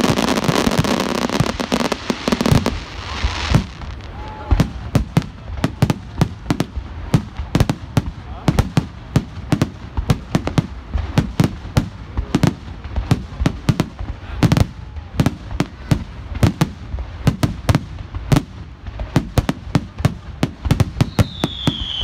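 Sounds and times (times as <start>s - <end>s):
high falling firework whistle: 21.0s - 22.0s.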